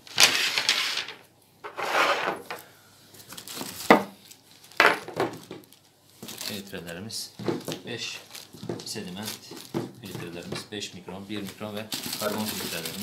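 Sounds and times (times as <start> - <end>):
cardboard rustling scrape: 0.0 - 2.6, 11.9 - 13.0.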